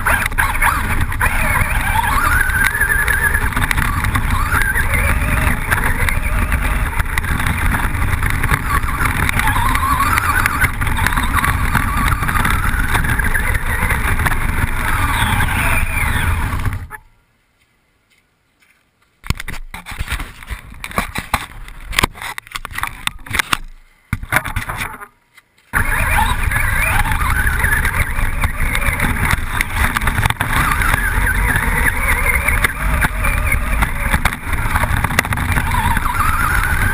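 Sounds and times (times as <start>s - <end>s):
electric motor whining: 0.0s - 16.9s, 25.8s - 36.9s
tyres rumbling on dirt: 0.0s - 17.0s, 19.2s - 36.9s
wind noise: 0.0s - 17.1s, 19.2s - 25.1s, 25.7s - 36.9s.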